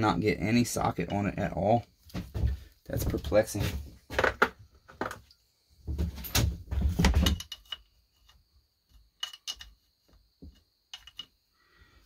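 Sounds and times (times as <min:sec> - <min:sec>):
metal tools clattering and scraping: 0:06.1 - 0:08.3.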